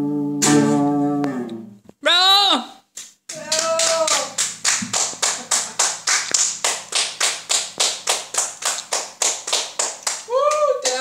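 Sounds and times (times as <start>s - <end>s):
hand claps in a steady beat: 3.0s - 11.0s.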